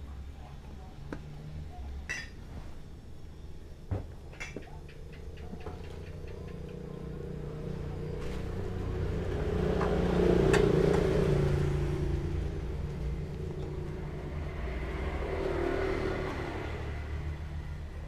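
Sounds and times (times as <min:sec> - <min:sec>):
vehicle engine approaching: 0:04.7 - 0:18.0.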